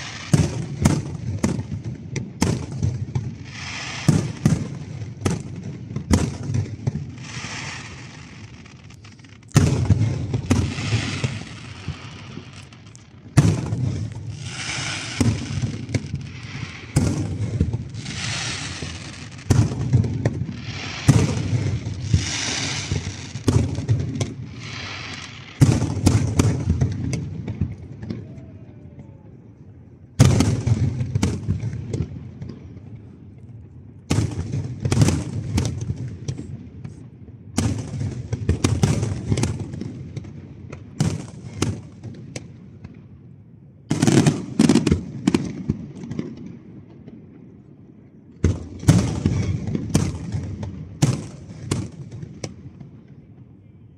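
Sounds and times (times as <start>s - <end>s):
firework crackle: 0.0s - 28.2s, 48.4s - 52.6s
firework shells booming: 0.0s - 28.2s.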